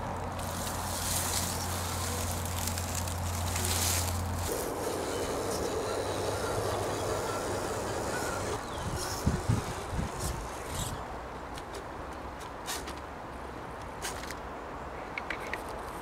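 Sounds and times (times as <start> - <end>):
electric motor and gears whining: 0.0 - 11.0.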